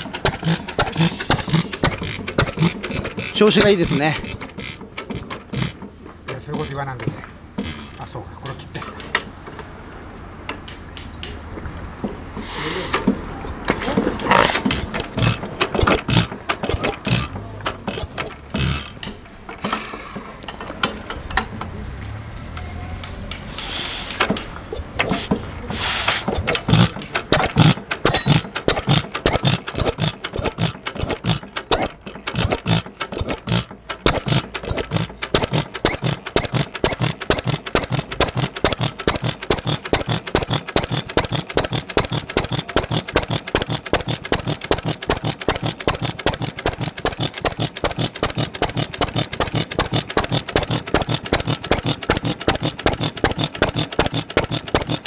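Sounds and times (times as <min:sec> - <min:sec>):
hissing bursts: 0:00.0 - 0:05.8, 0:12.4 - 0:13.1, 0:23.4 - 0:55.0
stationary engine exhaust beats: 0:00.0 - 0:55.0.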